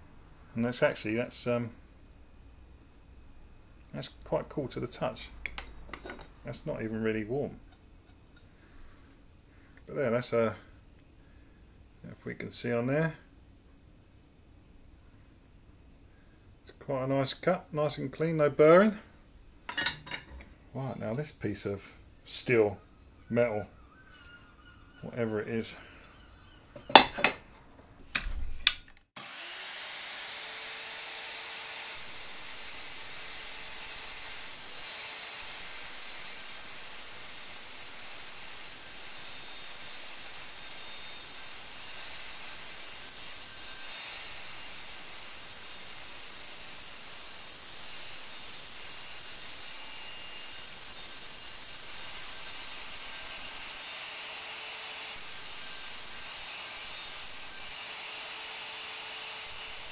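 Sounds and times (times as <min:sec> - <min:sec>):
mitre saw cutting steel: 0:23.4 - 0:27.5, 0:29.2 - 0:59.9.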